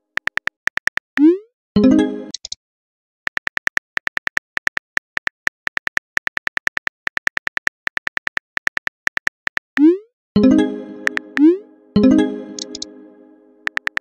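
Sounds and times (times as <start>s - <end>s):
keyboard typing clicks: 10.5s - 12.9s, 13.6s - 14.0s.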